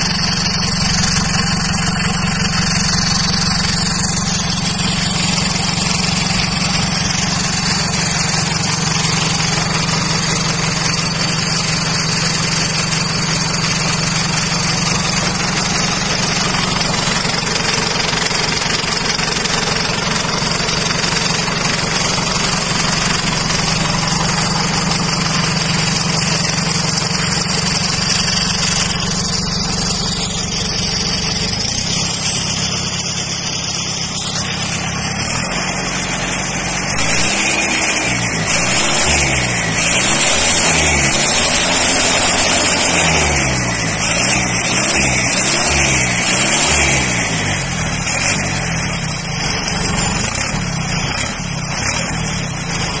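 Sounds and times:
diesel engine revving: 0.0 - 53.0
turbo whistle: 31.8 - 35.9.

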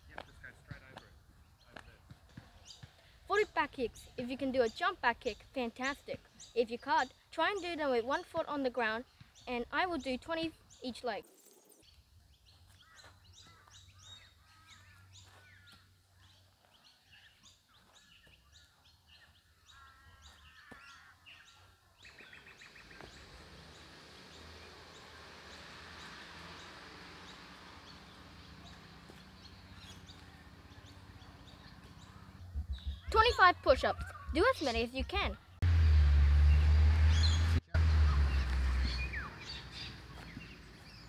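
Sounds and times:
birds chirping: 0.0 - 41.0.

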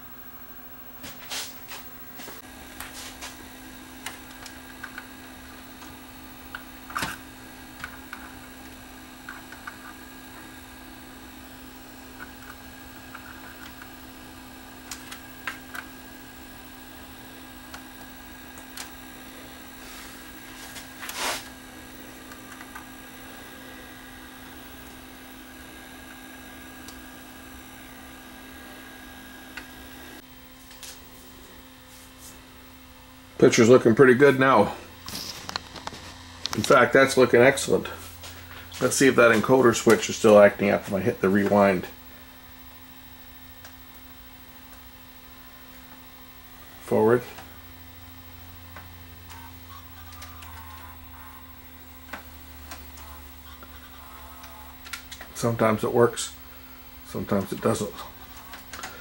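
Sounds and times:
vcr humming: 0.0 - 59.0.

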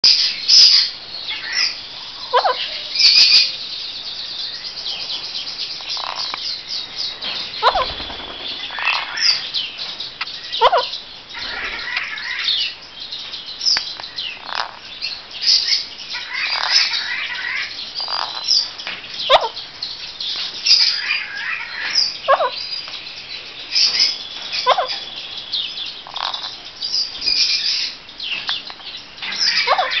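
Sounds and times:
parakeets squawking and chirping: 0.1 - 3.6, 5.8 - 9.7, 10.3 - 12.7, 14.3 - 14.8, 15.4 - 19.6, 20.6 - 22.8, 23.7 - 28.0, 28.6 - 30.0.

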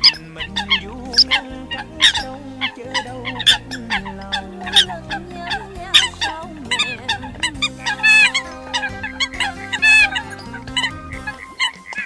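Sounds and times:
coot calls: 0.0 - 12.0
faint music with sustained notes: 0.0 - 12.0.

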